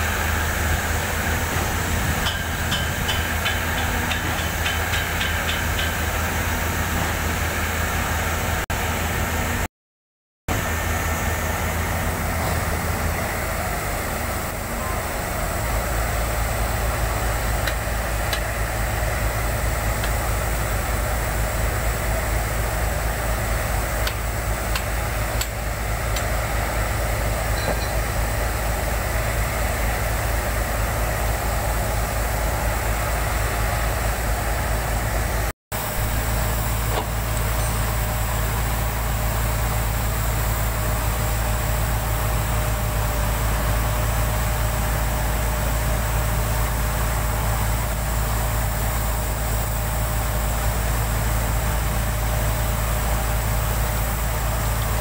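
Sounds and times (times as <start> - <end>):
diesel engine droning: 0.0 - 9.7, 10.5 - 55.0.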